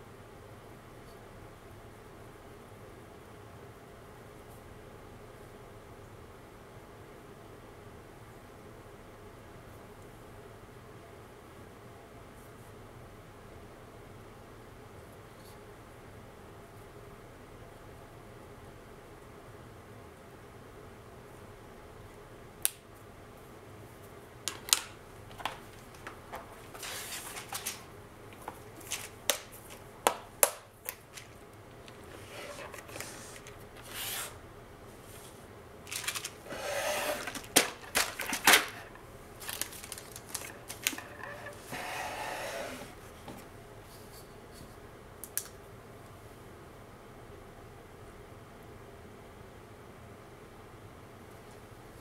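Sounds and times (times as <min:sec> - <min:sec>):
rustling of craft supplies: 0:24.5 - 0:44.8.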